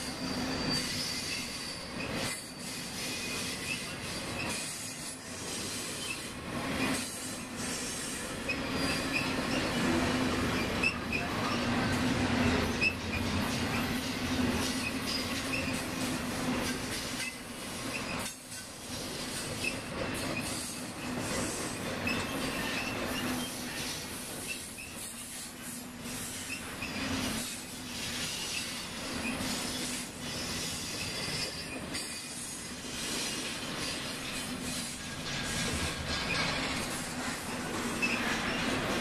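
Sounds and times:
wheel squeals: 0.0s - 13.9s, 14.6s - 16.0s, 22.0s - 25.4s, 26.2s - 32.6s, 33.2s - 39.0s.

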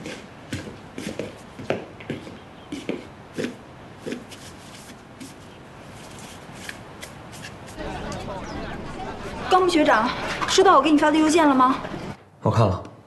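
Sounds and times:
footsteps on hard floor: 0.0s - 3.5s.

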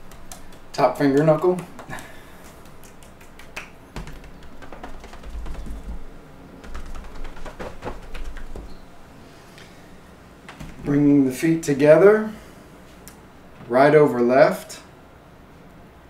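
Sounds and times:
hands patting body and legs: 0.0s - 8.8s, 10.5s - 11.1s.

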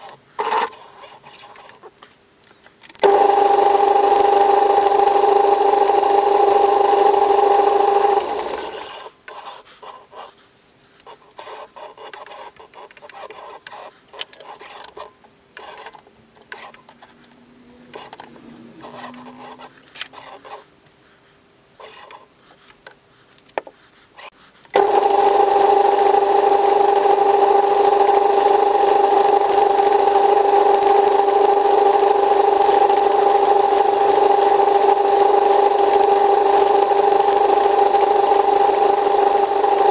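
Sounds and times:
metal lathe humming: 3.0s - 9.1s, 24.8s - 39.9s.

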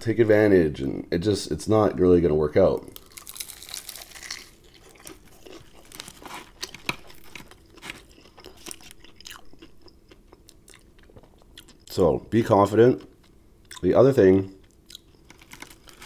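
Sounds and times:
fried chicken crunching: 2.9s - 11.8s, 14.6s - 16.0s
wet chewing: 3.0s - 11.9s.

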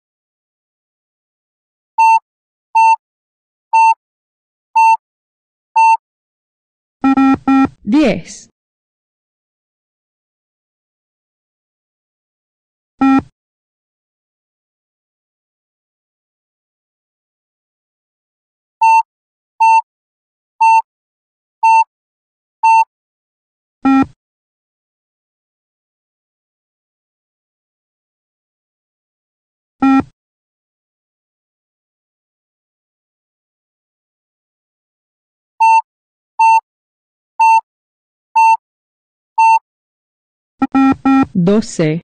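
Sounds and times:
short electronic beeps: 2.0s - 2.2s, 2.8s - 3.0s, 3.8s - 4.0s, 5.8s - 6.0s, 7.0s - 7.7s, 13.0s - 13.2s, 20.6s - 20.8s, 21.6s - 21.8s, 22.6s - 22.8s, 23.9s - 24.1s, 29.8s - 30.0s, 35.6s - 35.8s, 37.4s - 37.6s, 38.4s - 38.6s, 39.4s - 39.6s, 40.6s - 41.4s
short high countdown beeps: 2.0s - 2.2s, 3.8s - 4.0s, 5.8s - 6.0s, 20.6s - 20.8s, 21.6s - 21.8s, 22.6s - 22.8s, 37.4s - 37.6s, 38.4s - 38.6s, 39.4s - 39.6s.

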